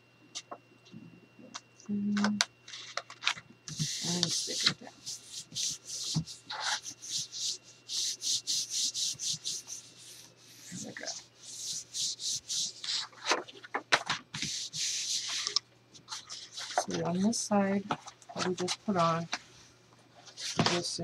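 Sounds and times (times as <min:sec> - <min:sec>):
hands rubbing paper: 0:03.7 - 0:17.3.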